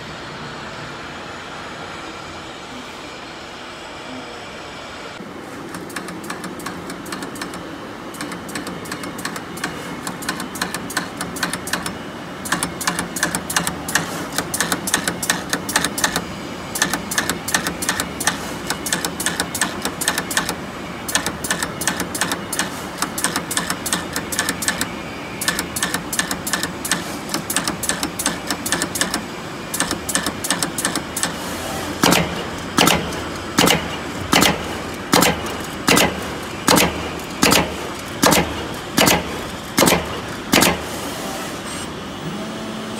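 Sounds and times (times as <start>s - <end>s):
machine hum: 0.0s - 42.9s
rapid irregular clicking and tapping: 5.7s - 31.4s, 32.0s - 40.9s.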